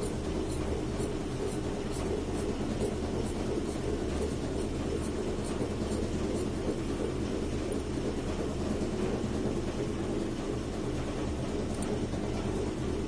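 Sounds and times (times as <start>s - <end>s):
scissors cutting fabric: 0.0s - 6.8s
steady low hum: 0.0s - 13.0s.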